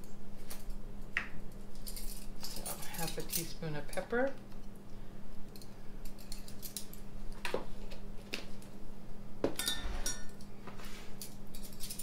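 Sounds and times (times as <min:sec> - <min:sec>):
utensils clinking and knocking: 0:09.5 - 0:10.4.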